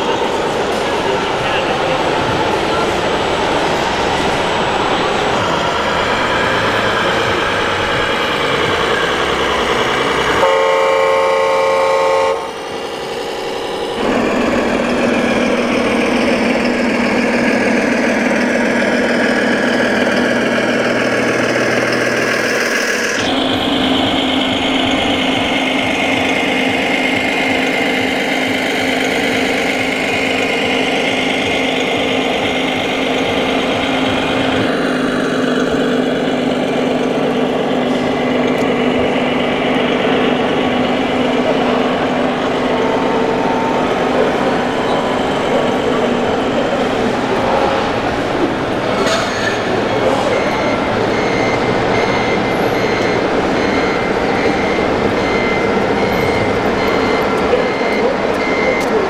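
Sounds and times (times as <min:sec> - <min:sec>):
toy truck engine drone: 0:00.0 - 0:48.0
horn sounding: 0:10.3 - 0:12.6.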